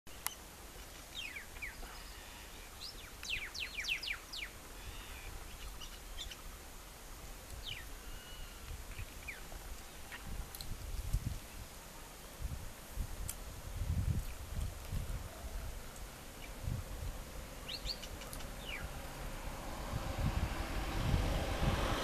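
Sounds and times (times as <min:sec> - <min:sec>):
small birds chirping: 0:00.1 - 0:12.4, 0:14.1 - 0:19.4
steady low rumble: 0:12.5 - 0:22.0.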